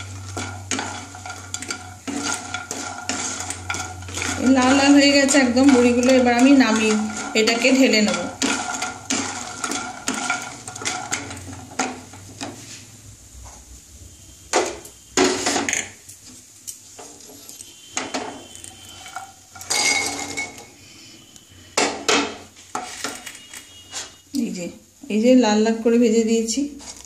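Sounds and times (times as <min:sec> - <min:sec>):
kitchenware clacking: 0:00.0 - 0:12.6, 0:18.0 - 0:20.7
wooden spatula scraping a wok: 0:00.0 - 0:13.7, 0:14.6 - 0:21.0, 0:21.7 - 0:24.2.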